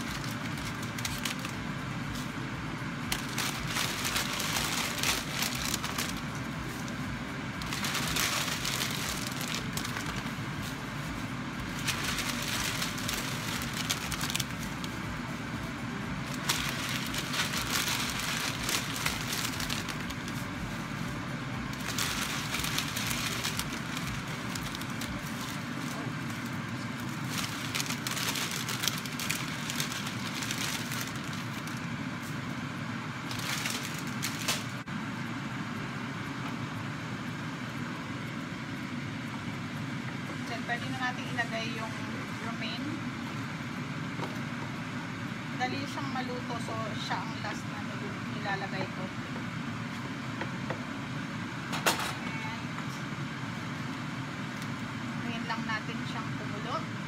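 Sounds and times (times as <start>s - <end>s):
plastic bag crinkling: 0.0s - 1.7s, 3.1s - 7.0s, 7.6s - 10.9s, 11.6s - 15.0s, 16.2s - 20.6s, 21.7s - 31.8s, 33.3s - 34.8s
low rumble: 0.0s - 32.0s.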